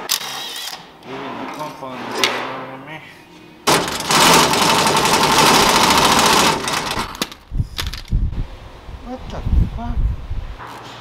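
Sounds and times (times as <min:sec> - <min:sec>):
pneumatic impact wrench hammering: 0:03.7 - 0:07.4.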